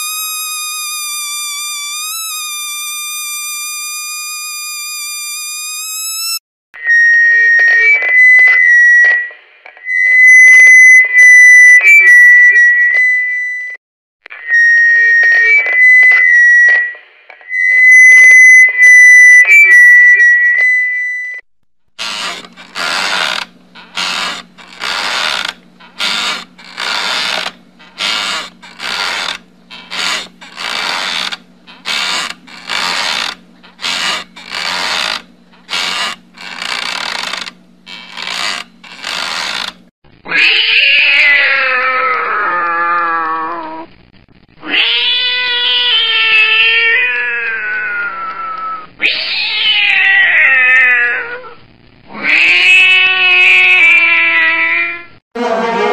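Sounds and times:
rocking chair creaking: 22.0s - 39.9s
cat yowling: 40.3s - 43.9s, 44.6s - 55.1s.

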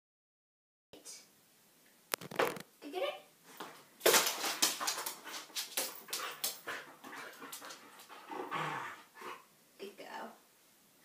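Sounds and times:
dog claws clattering on floor: 3.6s - 8.2s.

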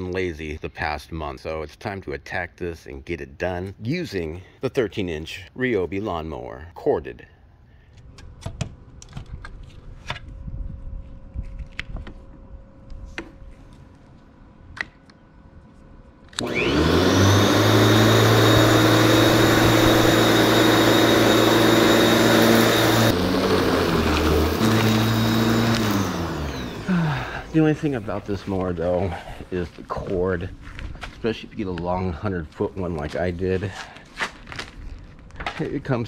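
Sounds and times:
electric lawn mower whine: 16.2s - 28.5s.

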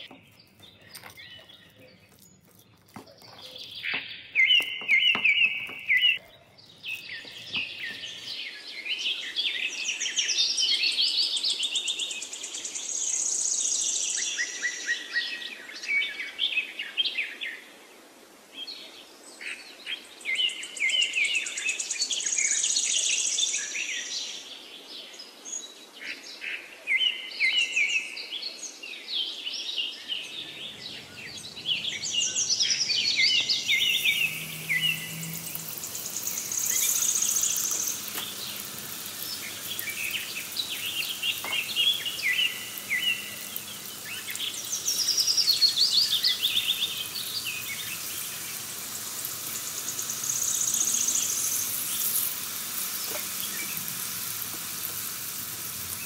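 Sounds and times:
birds chirping and trilling: 0.0s - 16.5s, 29.7s - 56.0s.

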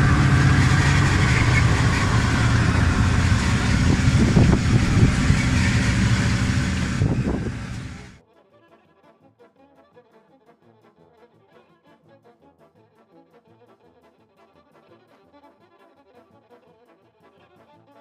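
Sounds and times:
small engine running: 0.0s - 8.2s.

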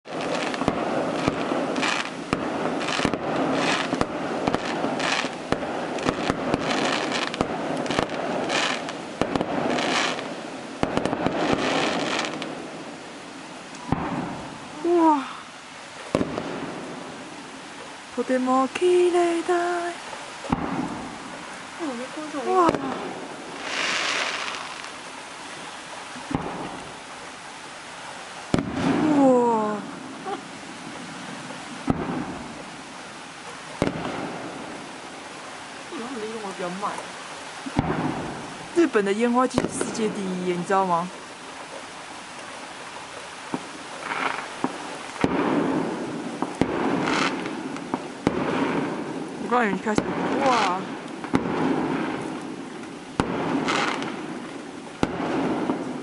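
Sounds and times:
fireworks popping and banging: 0.0s - 12.6s, 13.8s - 14.4s, 16.1s - 16.6s, 20.4s - 21.1s, 22.5s - 25.0s, 26.3s - 26.9s, 28.5s - 29.4s, 31.8s - 32.4s, 33.8s - 34.5s, 37.6s - 38.4s, 39.4s - 40.6s, 43.5s - 56.0s
fireworks crackling hiss: 0.0s - 56.0s.

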